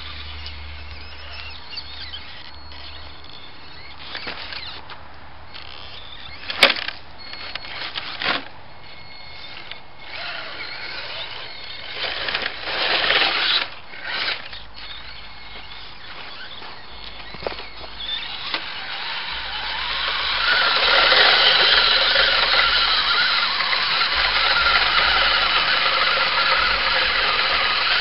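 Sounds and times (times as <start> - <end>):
toy truck motor whining: 0.0 - 4.9, 5.5 - 28.0.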